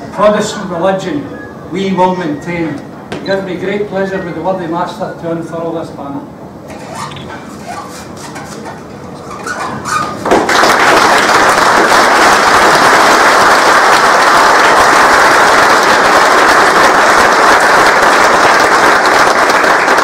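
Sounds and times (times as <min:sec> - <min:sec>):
audience applause: 0:10.3 - 0:20.0.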